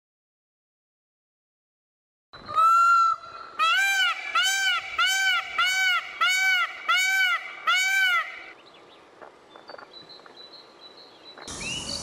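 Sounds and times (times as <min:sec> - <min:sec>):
peacock calling: 0:02.4 - 0:08.6.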